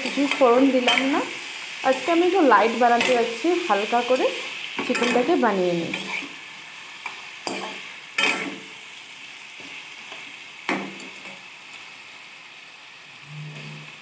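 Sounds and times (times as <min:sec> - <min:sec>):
food sizzling in oil: 0:00.0 - 0:14.0
spatula scraping pan: 0:04.8 - 0:06.4.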